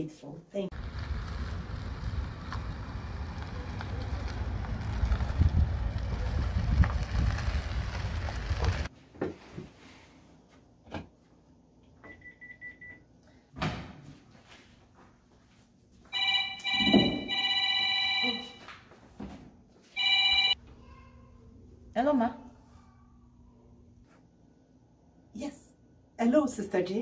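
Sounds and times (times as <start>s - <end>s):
low rushing outdoor noise: 0.7s - 8.9s
telephone ringing electronic trill: 16.2s - 18.5s.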